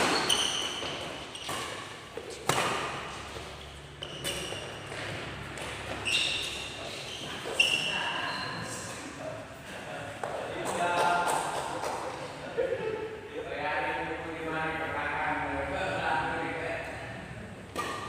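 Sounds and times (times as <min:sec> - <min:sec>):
racket smacking shuttlecock: 0:00.0 - 0:07.6, 0:17.7 - 0:18.0
sneakers squeaking on court floor: 0:00.0 - 0:09.0.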